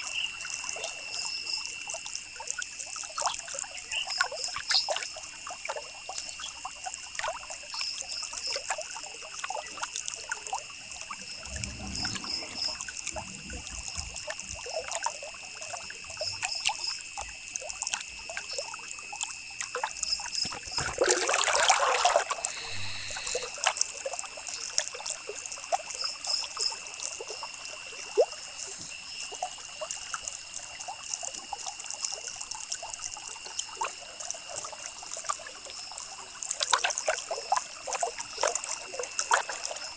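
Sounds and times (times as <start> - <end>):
steady high whine: 10.8 - 14.7, 22.4 - 23.7
rush of noise: 11.0 - 14.4, 22.5 - 23.6.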